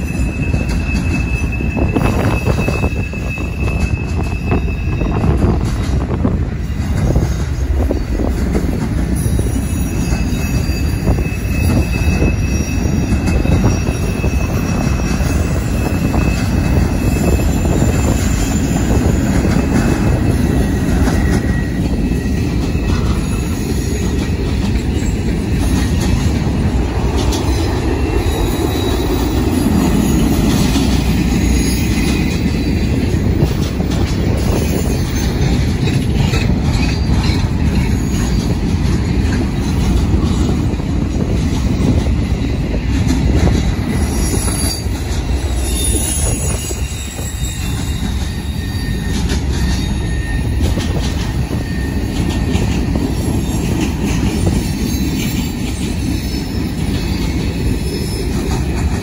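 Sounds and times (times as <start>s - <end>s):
high wheel squeals: 0.0s - 8.4s, 9.1s - 40.6s, 41.2s - 59.0s
train wheels rumbling on rail: 0.0s - 59.0s.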